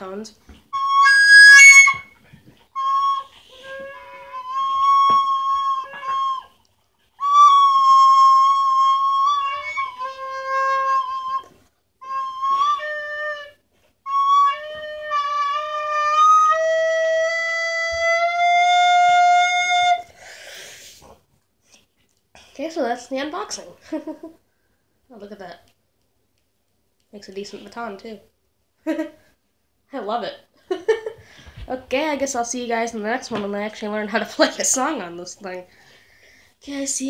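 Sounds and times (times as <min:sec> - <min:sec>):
recorder playing held notes: 0:00.7 - 0:02.1, 0:02.8 - 0:06.5, 0:07.2 - 0:20.0.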